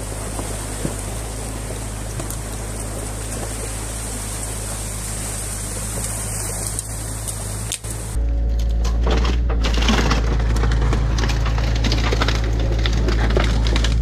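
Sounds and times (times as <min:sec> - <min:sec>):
water flowing: 0:00.0 - 0:08.8
excavator diesel engine running: 0:00.0 - 0:14.0.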